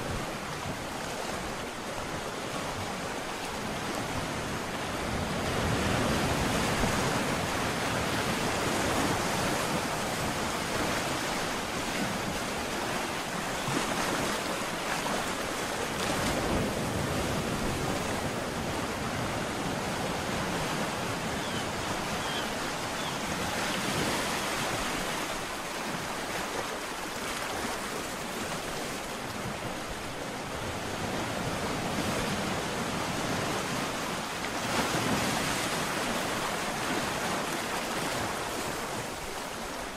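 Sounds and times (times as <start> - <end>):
ocean waves breaking: 0.0 - 39.9.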